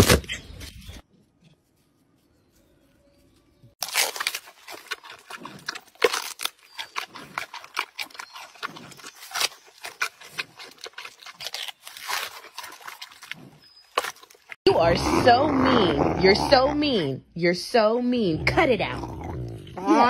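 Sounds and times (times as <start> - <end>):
panda chewing bamboo crunching: 3.8 - 14.6.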